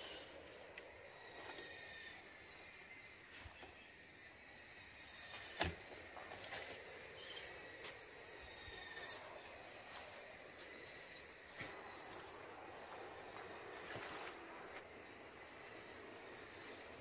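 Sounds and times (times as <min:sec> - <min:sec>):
high insect buzz: 0:00.0 - 0:17.0
footsteps and rustling: 0:11.5 - 0:14.9.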